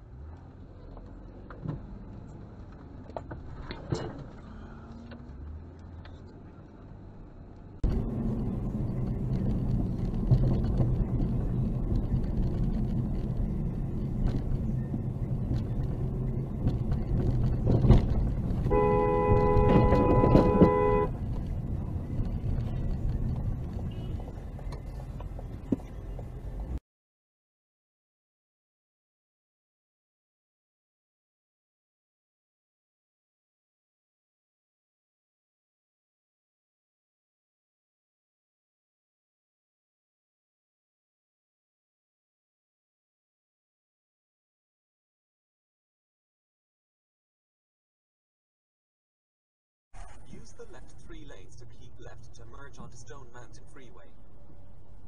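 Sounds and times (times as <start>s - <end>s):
car engine and tyre rumble: 0.0s - 26.8s, 50.0s - 55.0s
car horn: 18.6s - 21.2s, 23.8s - 24.4s.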